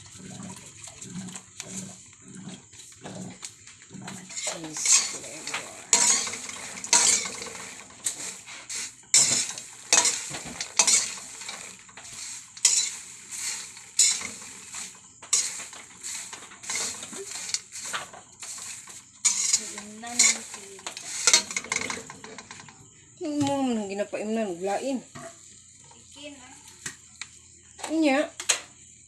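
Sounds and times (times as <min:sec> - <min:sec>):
spoon stirring popcorn in pot: 0:00.0 - 0:22.9.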